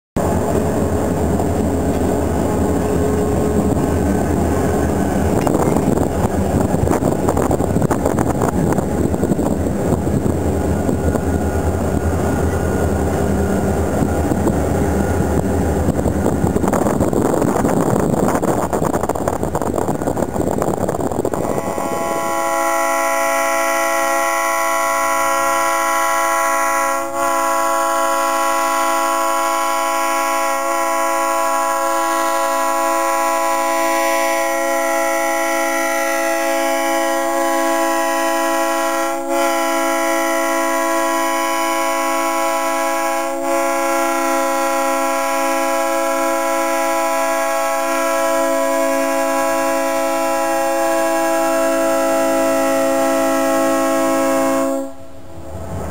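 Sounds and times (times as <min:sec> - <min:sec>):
wind and road noise: 0:00.2 - 0:22.5, 0:55.0 - 0:55.9
diesel locomotives rumbling: 0:00.2 - 0:55.9
locomotive horn blast: 0:21.3 - 0:55.2.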